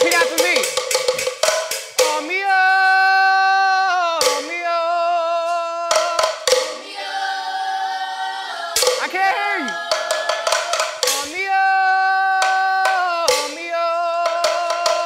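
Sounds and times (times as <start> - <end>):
sharp handclaps or rattle strikes: 0.0 - 2.3, 6.0 - 6.8, 8.8 - 11.4, 12.4 - 13.6.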